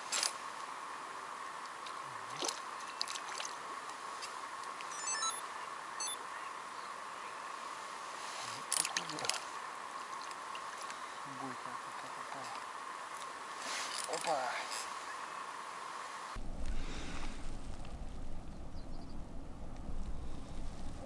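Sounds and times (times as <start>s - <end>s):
quiet outdoor hiss: 0.0s - 21.0s
high chirps: 4.9s - 6.2s.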